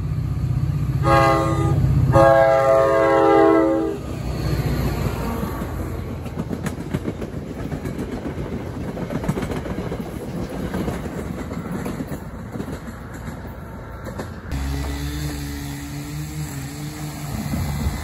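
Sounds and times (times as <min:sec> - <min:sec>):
train wheels clattering over rail joints: 0:04.5 - 0:18.0.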